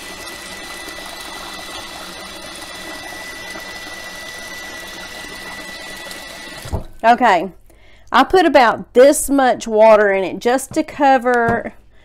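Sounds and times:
tap water running into pot: 0:00.0 - 0:07.0.

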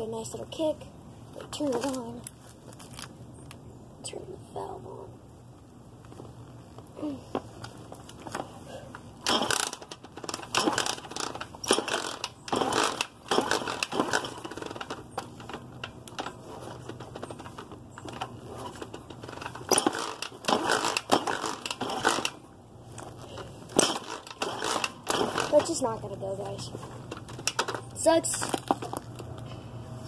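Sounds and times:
dirt bike kick-start clattering: 0:09.2 - 0:22.4, 0:23.0 - 0:29.0.

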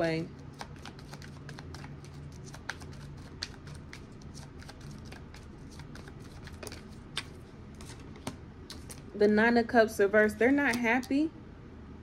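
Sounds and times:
cards being shuffled: 0:00.4 - 0:09.1.

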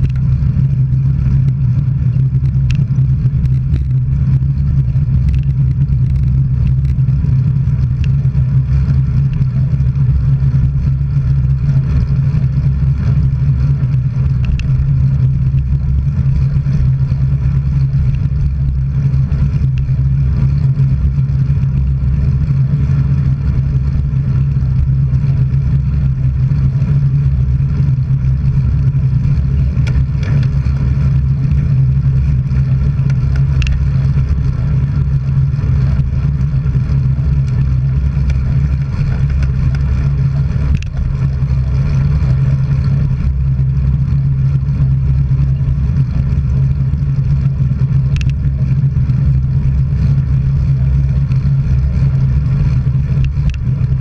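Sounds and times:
faint clicks: 0:00.0 - 0:00.4, 0:02.3 - 0:04.0, 0:14.4 - 0:14.8, 0:32.9 - 0:34.4, 0:38.2 - 0:41.6, 0:48.1 - 0:48.5, 0:52.8 - 0:54.0
wind and road noise: 0:00.0 - 0:54.0.

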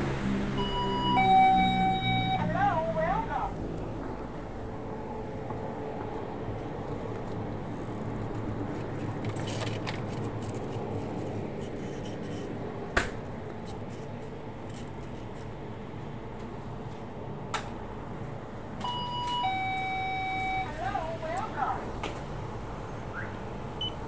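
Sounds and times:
store interior hum: 0:00.0 - 0:24.0
electronic door chime: 0:00.6 - 0:02.5, 0:18.8 - 0:20.8.

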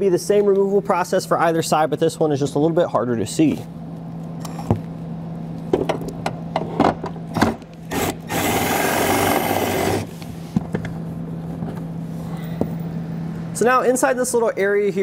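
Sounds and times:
cordless drill running: 0:07.9 - 0:10.1.

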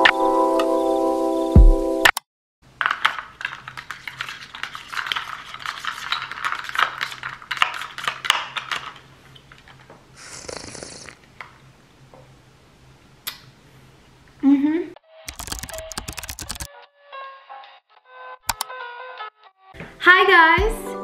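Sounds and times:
ice cubes clinking in a cup: 0:02.8 - 0:09.8
sip through a straw: 0:10.2 - 0:11.2.

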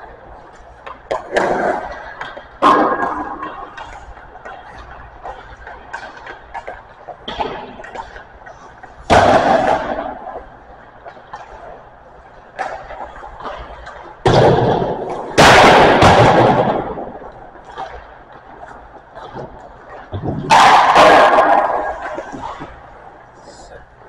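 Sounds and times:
stick and puck knocks: 0:00.4 - 0:22.9
hockey puck bangs: 0:00.8 - 0:08.2, 0:09.0 - 0:10.4, 0:12.6 - 0:18.0, 0:19.3 - 0:22.8.

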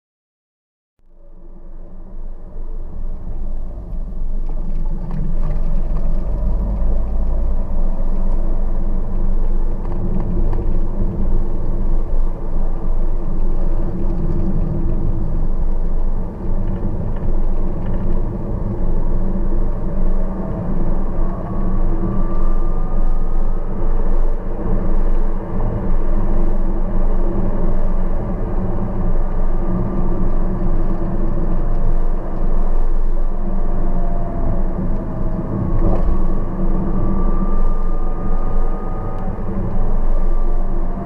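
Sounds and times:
car engine and road noise: 0:01.0 - 0:41.0
faint rising tone: 0:18.8 - 0:29.7, 0:32.5 - 0:41.0.

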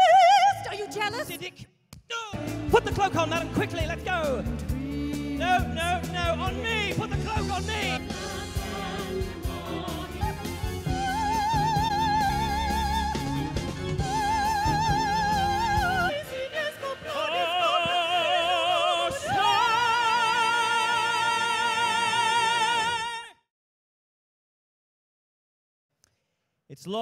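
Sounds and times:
woman singing opera: 0:00.0 - 0:01.3, 0:14.0 - 0:21.2
man singing opera: 0:02.3 - 0:08.0, 0:14.1 - 0:23.4
band with drums playing: 0:02.4 - 0:16.1.

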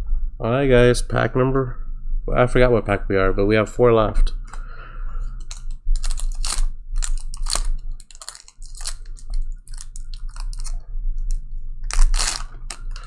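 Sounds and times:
card pack wrapper crinkling and tearing: 0:05.4 - 0:13.0.

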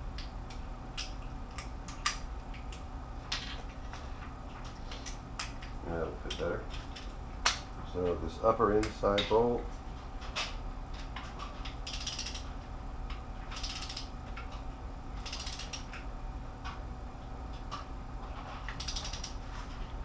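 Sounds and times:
socket ratchet clicking: 0:11.8 - 0:12.5, 0:13.5 - 0:14.1, 0:15.2 - 0:16.0, 0:18.7 - 0:19.4.

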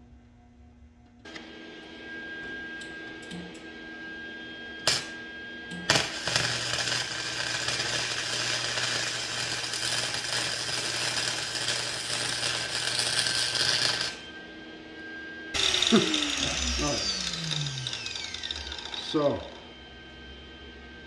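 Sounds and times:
arc welding crackle: 0:04.8 - 0:05.1, 0:05.8 - 0:14.2, 0:15.6 - 0:19.5
steady low hum: 0:14.2 - 0:21.0.

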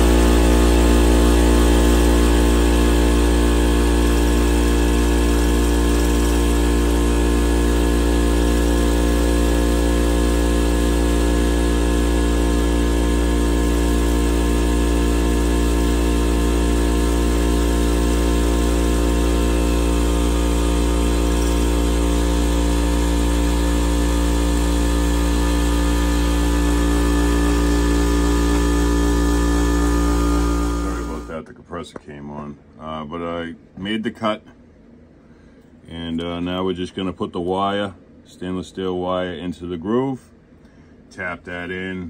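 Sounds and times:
milling machine hum and whine: 0:00.0 - 0:31.3
fast even pulsing: 0:00.0 - 0:31.4.

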